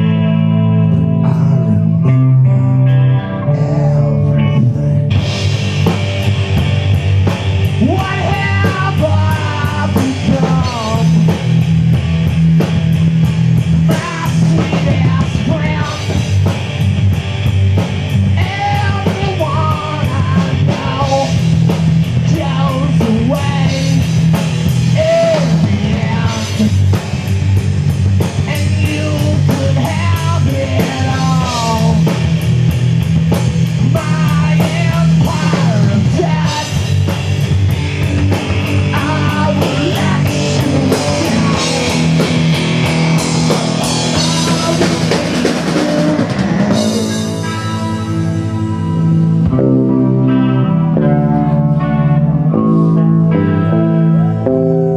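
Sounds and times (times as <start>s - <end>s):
bass guitar: 0.0s - 54.9s
electric guitars: 0.0s - 54.9s
man singing into a microphone: 0.9s - 5.1s, 7.8s - 11.4s, 13.8s - 16.3s, 18.4s - 21.4s, 22.2s - 24.1s, 24.9s - 26.8s, 28.4s - 32.1s, 33.8s - 37.0s, 38.9s - 42.4s, 43.8s - 47.0s
drum kit with cymbal strikes: 5.1s - 49.4s.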